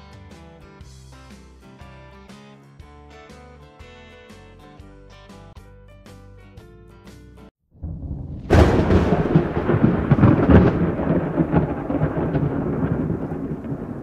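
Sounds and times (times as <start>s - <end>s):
heavy rain: 7.8s - 14.0s
thunder rumbling and cracking: 7.8s - 14.0s.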